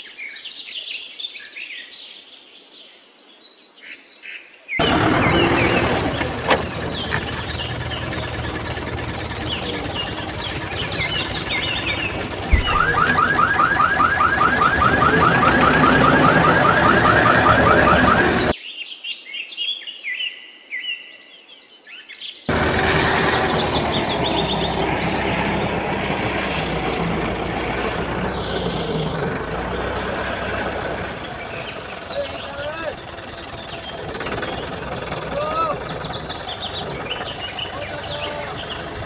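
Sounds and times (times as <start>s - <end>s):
tractor engine rumble: 4.8s - 18.5s, 22.5s - 39.0s
birds chirping: 4.8s - 18.6s, 22.4s - 39.0s
rapid repeating rising chirp: 6.9s - 18.5s.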